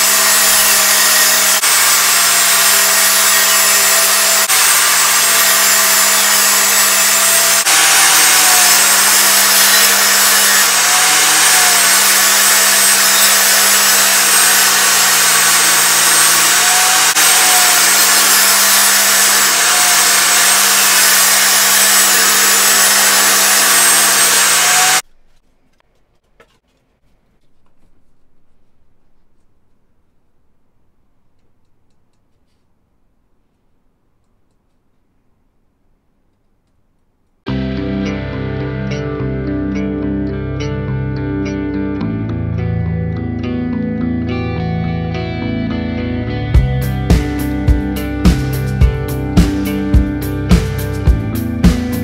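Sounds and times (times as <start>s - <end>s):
table saw whine: 0.0s - 25.0s.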